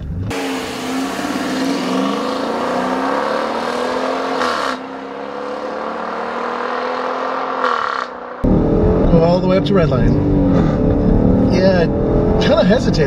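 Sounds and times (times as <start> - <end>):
car engine at full throttle: 0.0 - 13.0.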